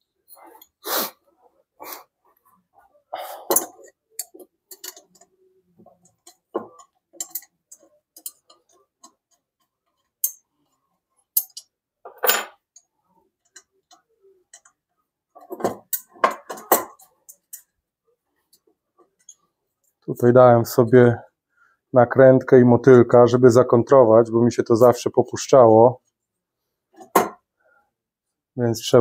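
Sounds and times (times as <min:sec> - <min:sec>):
spanners clinking on bolts: 0:03.5 - 0:05.3, 0:06.1 - 0:08.8, 0:11.4 - 0:12.9.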